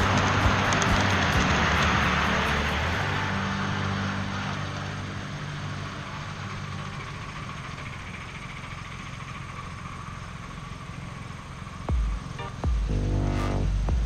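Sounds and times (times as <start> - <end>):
low engine drone: 0.0 - 14.0
outdoor background noise: 0.0 - 14.0.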